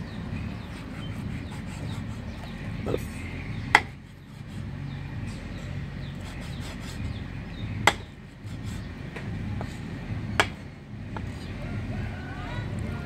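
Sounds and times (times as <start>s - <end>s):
steady low rumble: 0.0s - 13.0s
sharp knocks: 3.7s - 4.0s, 7.8s - 8.2s, 10.3s - 11.3s.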